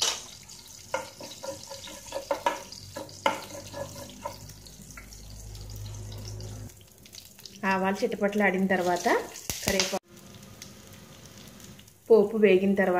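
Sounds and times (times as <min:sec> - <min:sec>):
spices frying in hot oil: 0:00.0 - 0:12.9.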